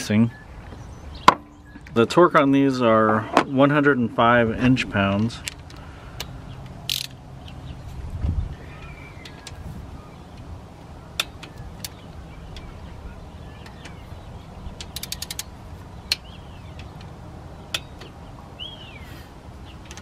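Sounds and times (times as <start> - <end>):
low steady rumble: 0.0 - 20.0
hand ratchet clicking: 6.9 - 7.2, 14.8 - 15.5
faint bird chirps: 8.5 - 10.4.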